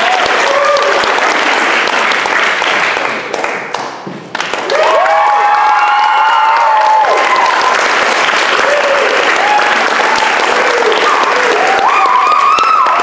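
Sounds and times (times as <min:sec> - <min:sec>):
people whooping and cheering: 0:00.0 - 0:01.6, 0:04.5 - 0:13.0
audience applauding: 0:00.0 - 0:13.0.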